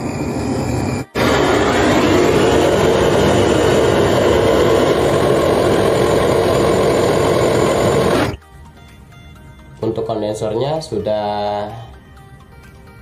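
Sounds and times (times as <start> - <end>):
gas torch flame hissing: 0.0 - 8.4.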